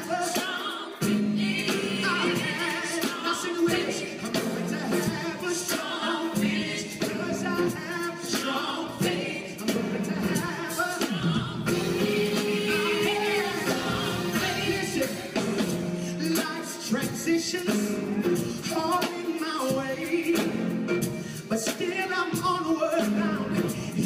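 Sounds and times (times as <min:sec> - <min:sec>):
drum kit and cymbals: 0:00.0 - 0:24.0
male lead singer: 0:01.9 - 0:24.0
female backing vocals: 0:11.0 - 0:14.9.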